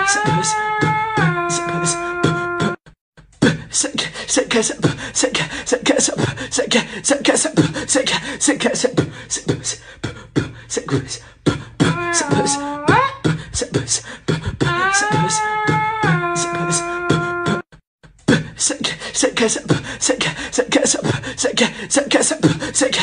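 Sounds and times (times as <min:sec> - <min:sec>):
held voice sliding in pitch: 0:00.0 - 0:02.8, 0:11.8 - 0:13.3, 0:14.6 - 0:17.6.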